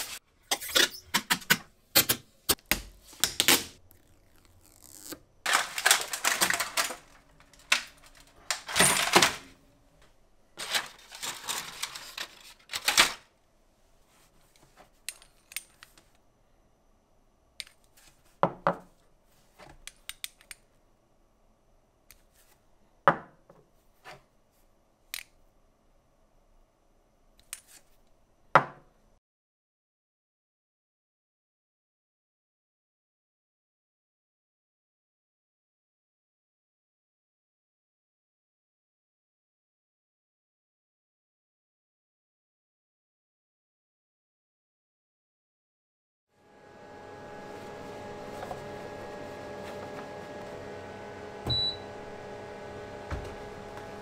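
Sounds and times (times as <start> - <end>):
plastic film crackling as peeled: 3.9 - 8.4.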